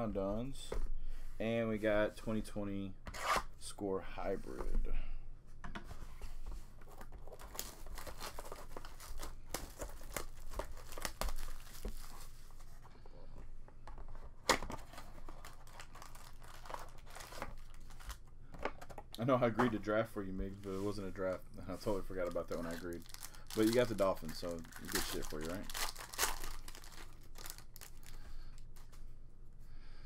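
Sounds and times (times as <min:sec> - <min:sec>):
cellophane crinkling: 0:06.9 - 0:12.4, 0:14.6 - 0:18.2, 0:21.2 - 0:29.0.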